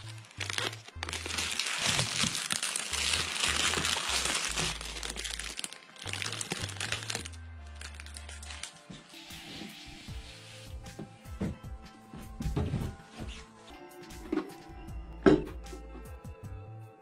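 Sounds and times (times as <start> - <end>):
plastic sheet crinkling: 0.0 - 8.8
background music with bass: 0.0 - 17.0.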